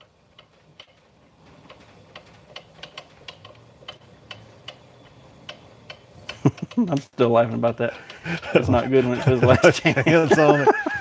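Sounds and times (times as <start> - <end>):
crank wheel clicking: 0.0 - 7.1.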